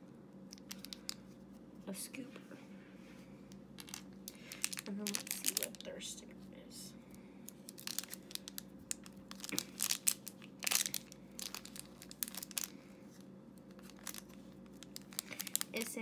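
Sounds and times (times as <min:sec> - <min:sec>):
wrapper tearing and crinkling: 0:00.5 - 0:01.2, 0:03.8 - 0:05.8, 0:07.5 - 0:12.8, 0:13.7 - 0:16.0.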